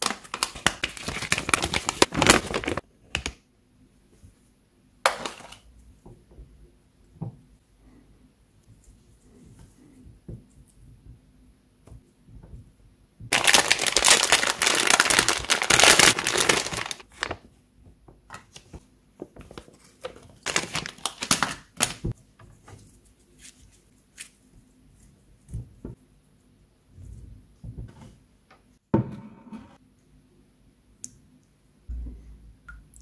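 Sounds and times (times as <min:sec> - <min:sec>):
foil packet crinkling: 0:00.0 - 0:03.4, 0:05.1 - 0:05.6, 0:13.3 - 0:17.4, 0:19.4 - 0:22.1.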